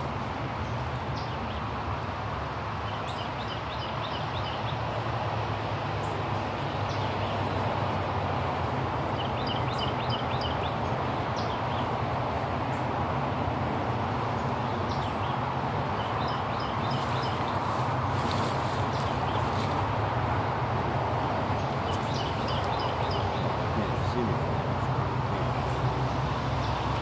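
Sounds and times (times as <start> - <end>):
steady rushing noise: 0.0 - 27.0.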